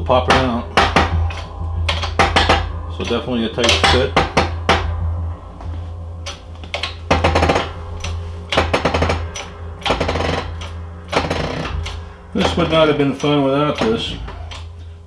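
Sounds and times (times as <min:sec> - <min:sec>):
metallic clanks with ringing: 0:00.1 - 0:05.0.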